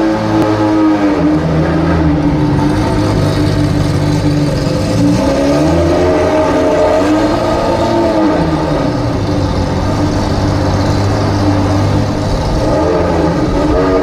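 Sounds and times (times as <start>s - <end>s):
sports car engine pulling away: 0.0s - 14.0s.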